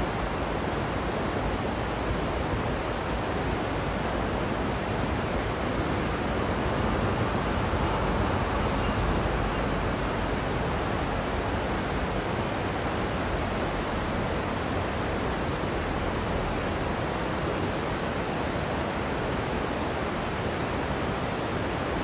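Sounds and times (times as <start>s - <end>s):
river water rushing over rocks: 0.0s - 22.0s.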